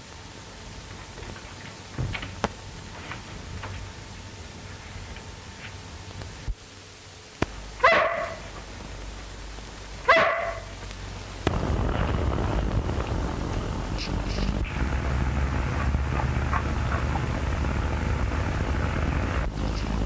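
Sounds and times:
steady background noise: 0:00.0 - 0:20.0
dog barking: 0:07.8 - 0:08.5, 0:10.0 - 0:10.8.

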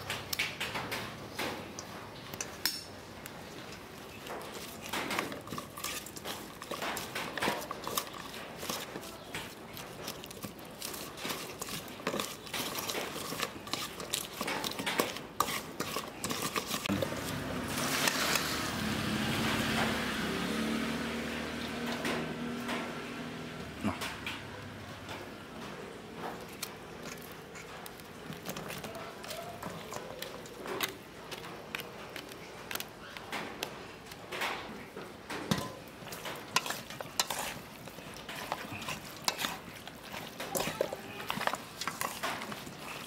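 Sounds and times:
metal spoons clinking in steel bowl: 0:04.5 - 0:17.0, 0:36.4 - 0:43.0.

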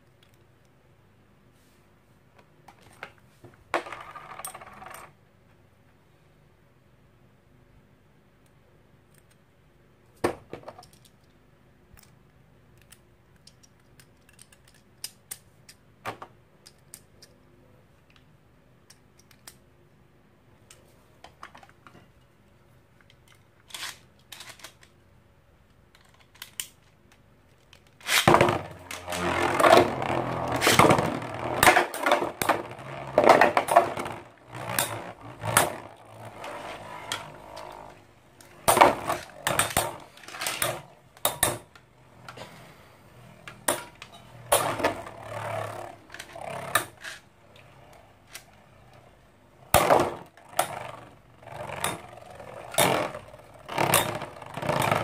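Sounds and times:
spinning tops rattling and scraping: 0:03.7 - 0:05.2, 0:23.2 - 0:24.9, 0:27.6 - 0:55.0
spinning tops clacking together: 0:28.0 - 0:41.8.

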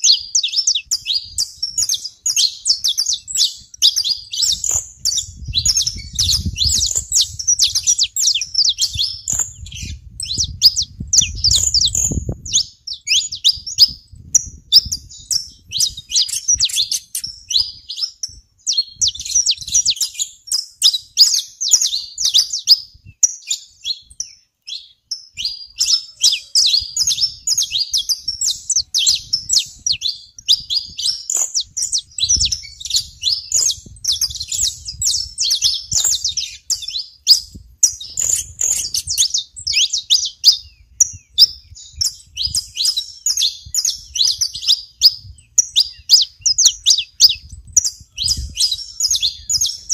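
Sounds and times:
finches chirping: 0:00.0 - 0:49.9.

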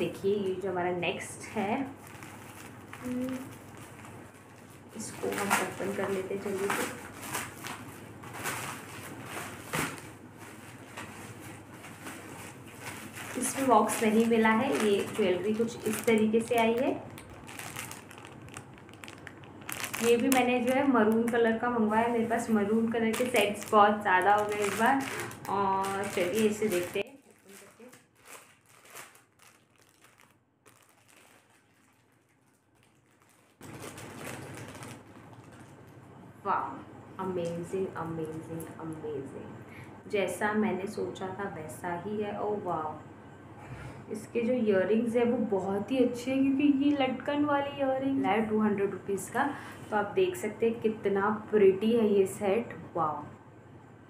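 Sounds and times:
plastic packaging crinkling: 0:01.6 - 0:36.2.

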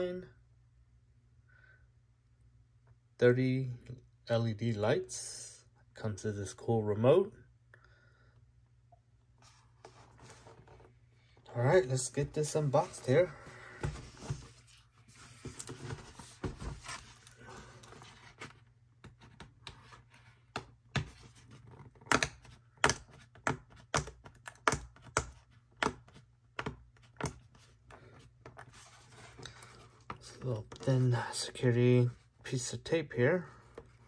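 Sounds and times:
cardboard box handling: 0:12.4 - 0:19.4.

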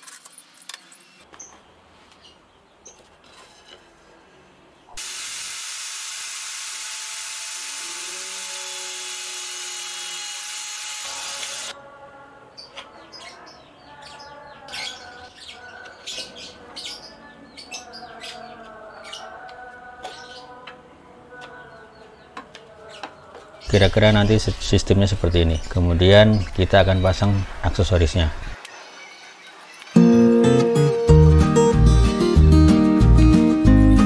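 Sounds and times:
electric drill drilling into wood: 0:05.0 - 0:11.7
birds chirping: 0:12.5 - 0:32.4.

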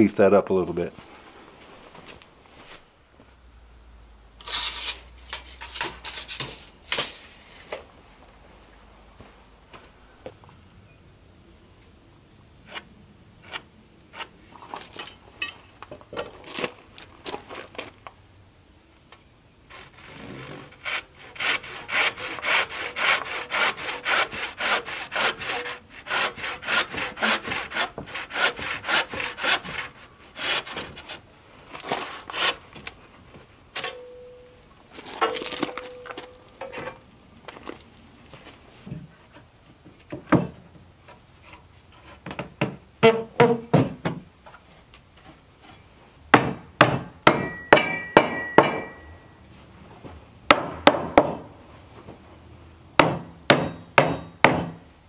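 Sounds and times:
hand saw cutting wood: 0:04.4 - 0:06.6, 0:12.7 - 0:14.3, 0:19.7 - 0:31.2, 0:31.8 - 0:32.6.

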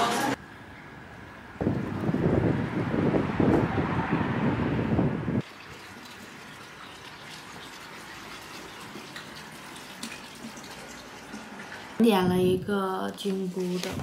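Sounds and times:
wind buffeting microphone: 0:01.6 - 0:05.4, 0:12.1 - 0:12.8.

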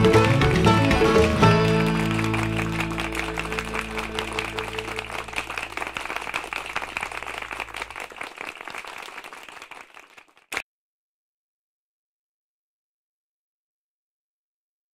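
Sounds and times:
applause: 0:00.0 - 0:10.6.

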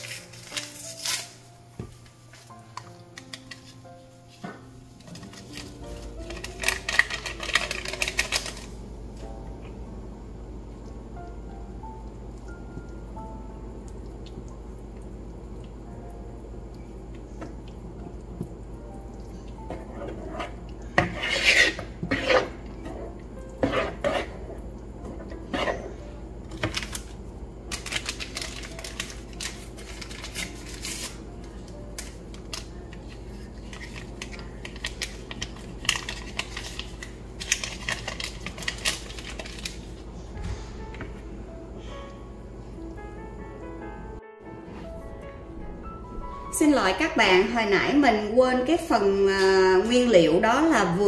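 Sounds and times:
soft background music: 0:00.0 - 0:51.0
utensil scraping a mixing bowl: 0:19.7 - 0:26.0.

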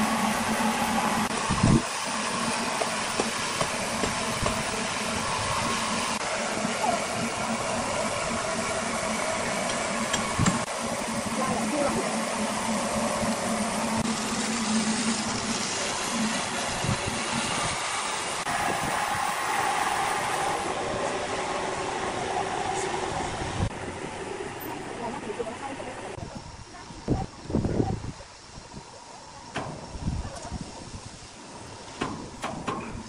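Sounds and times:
pressure washer motor humming: 0:00.0 - 0:26.2.

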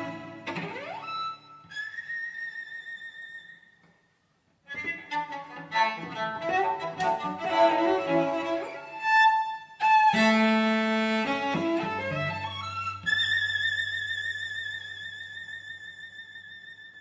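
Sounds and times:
cellos playing bowed chords: 0:00.0 - 0:01.4, 0:04.7 - 0:13.3.

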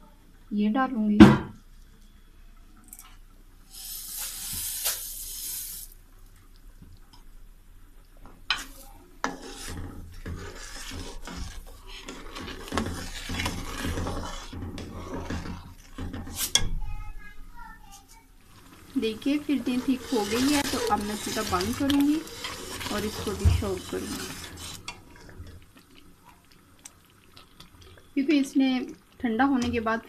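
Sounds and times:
sugar pouring hiss: 0:03.6 - 0:06.0, 0:18.4 - 0:24.9
metal spoon scraping pan: 0:08.5 - 0:16.8, 0:18.6 - 0:25.5.

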